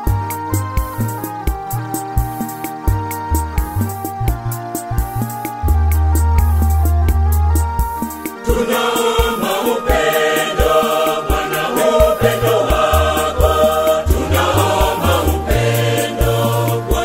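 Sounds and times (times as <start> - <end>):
electronic organ: 0.0 - 17.0
steady beat: 0.8 - 17.0
women's choir singing gospel: 8.4 - 17.0.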